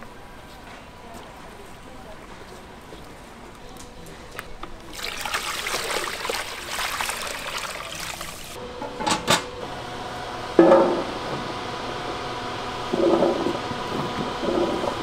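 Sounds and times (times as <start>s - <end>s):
water pouring into a pot: 4.9s - 8.6s.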